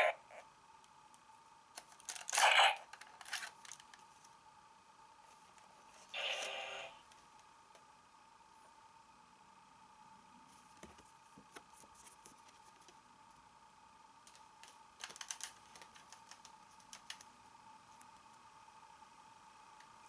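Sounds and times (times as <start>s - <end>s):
cards clicking and rattling: 1.7s - 4.1s, 14.3s - 17.3s.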